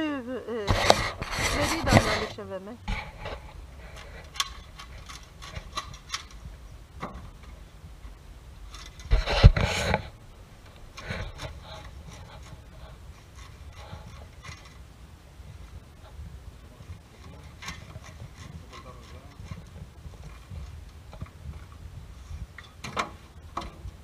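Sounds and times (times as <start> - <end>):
knocks and thumps: 0.7 - 14.8, 15.5 - 24.0
blades scraping fish: 0.9 - 2.3.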